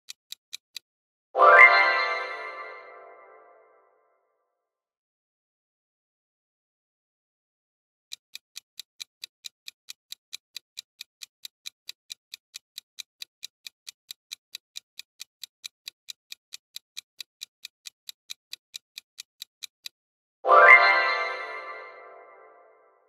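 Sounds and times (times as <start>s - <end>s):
clock ticking: 0.0s - 0.9s, 8.1s - 20.0s.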